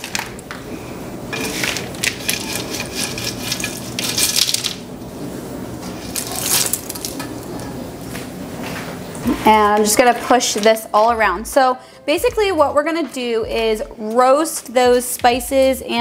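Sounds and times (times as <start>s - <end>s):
snack mix pouring onto metal pans: 1.3s - 4.8s, 6.0s - 7.4s.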